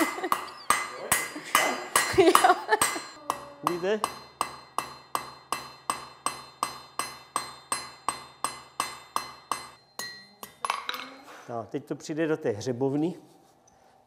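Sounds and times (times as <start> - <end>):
hammer striking hot iron: 0.0 - 10.8
anvil ringing: 0.0 - 11.1.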